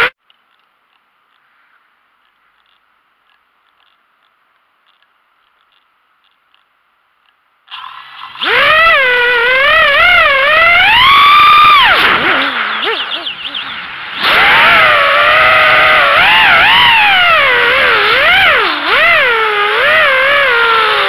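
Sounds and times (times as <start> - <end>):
drone motors and propellers spinning: 7.7 - 21.0.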